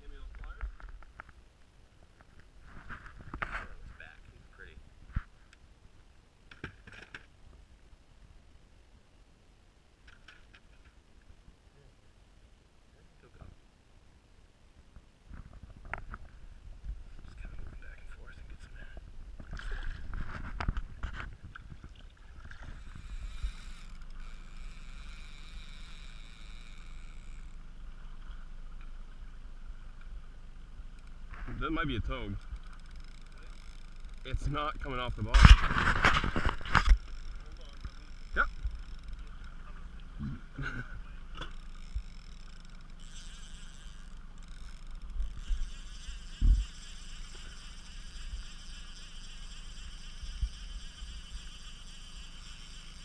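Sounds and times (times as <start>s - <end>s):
wind rumble on microphone: 15.3s - 23.6s
boat motor humming: 16.4s - 53.0s
water splashing: 21.4s - 24.0s
high buzz: 22.5s - 53.0s.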